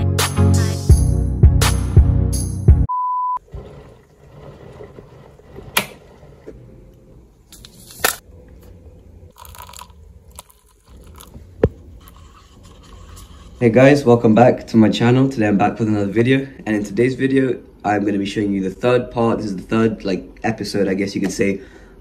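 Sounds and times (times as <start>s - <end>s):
background music: 0.0s - 2.9s
paper cup scraping: 3.5s - 6.5s, 9.4s - 14.2s
coffee stirred with wooden stirrer: 9.4s - 14.3s.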